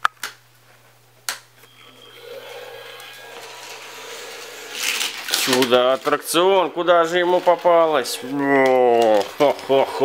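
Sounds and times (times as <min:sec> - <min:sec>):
steady noise: 0:01.6 - 0:08.4
plastic toy track clicking: 0:04.7 - 0:06.2, 0:07.3 - 0:09.8.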